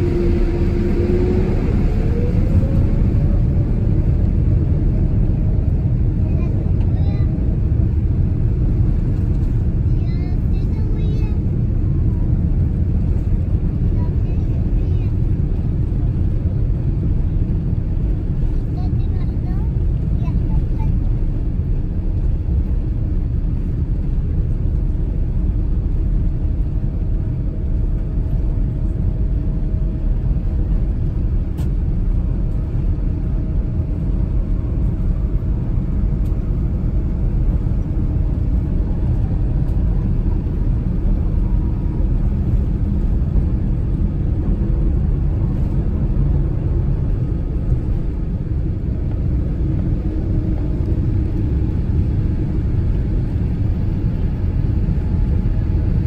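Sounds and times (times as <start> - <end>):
airplane cabin rumble while taxiing: 0.0 - 56.0.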